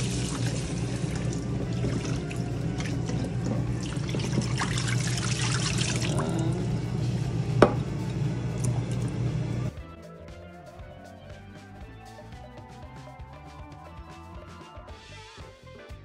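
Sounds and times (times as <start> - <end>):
water splashing in sink: 0.0 - 6.8
faucet water running: 0.0 - 9.7.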